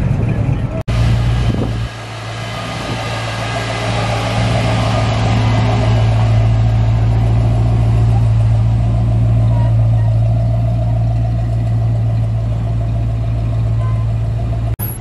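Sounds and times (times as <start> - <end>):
car engine running: 0.0 - 15.0.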